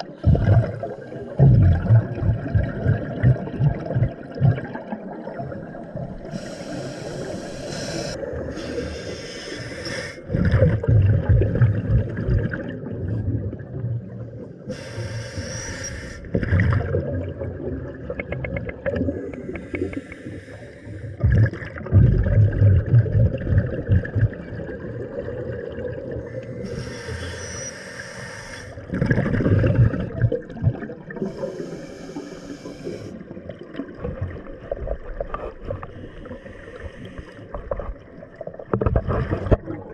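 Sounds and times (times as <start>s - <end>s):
exhaled bubbles rumbling: 0.0s - 6.3s, 10.2s - 14.7s, 16.3s - 20.1s, 21.0s - 26.8s, 28.7s - 31.7s, 32.8s - 39.9s
regulator hissing inhalations: 6.2s - 10.3s, 14.7s - 16.3s, 19.4s - 21.2s, 26.4s - 28.8s, 31.2s - 33.2s, 35.9s - 37.4s.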